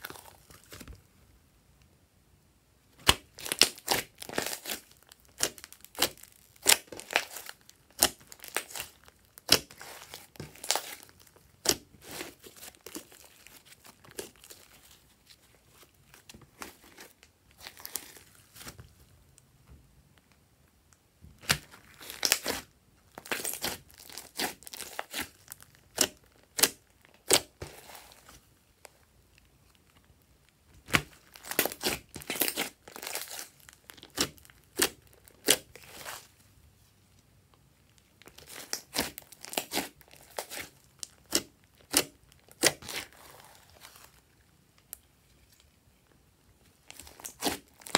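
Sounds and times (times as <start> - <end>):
slime being kneaded by hand: 0.0 - 1.1, 2.9 - 19.1, 21.2 - 29.1, 30.6 - 36.4, 37.9 - 44.3, 46.7 - 47.9
slime crackling and popping: 3.0 - 15.0, 21.4 - 28.3, 29.4 - 36.3, 37.9 - 44.2, 46.8 - 47.9.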